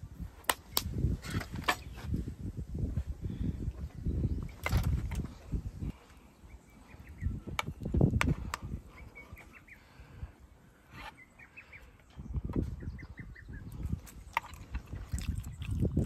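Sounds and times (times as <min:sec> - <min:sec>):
birds chirping: 0:03.3 - 0:16.0.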